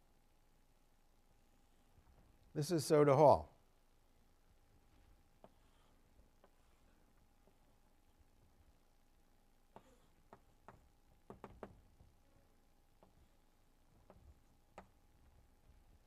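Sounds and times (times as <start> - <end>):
faint sharp taps and knocks: 6.3 - 6.7, 9.7 - 12.2, 12.9 - 13.3, 13.9 - 15.4.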